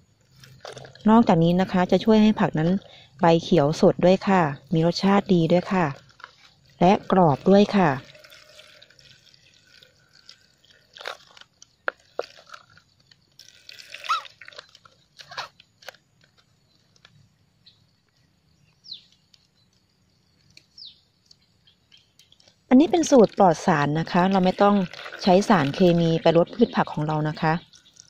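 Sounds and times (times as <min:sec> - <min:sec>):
milk dripping into plastic basin: 0:04.9 - 0:15.2, 0:22.2 - 0:28.0.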